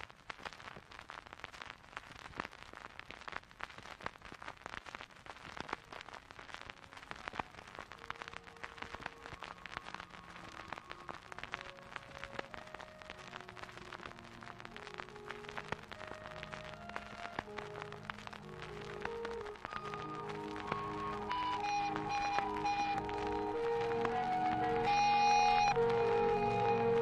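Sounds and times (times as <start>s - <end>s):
dense continuous crackle: 0.0s - 27.0s
quiet held tones: 7.2s - 27.0s.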